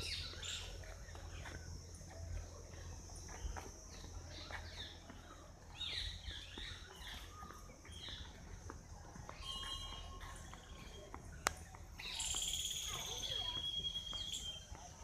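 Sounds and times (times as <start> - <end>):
high insect hum: 0.0 - 7.1
birds chirping: 0.0 - 15.0.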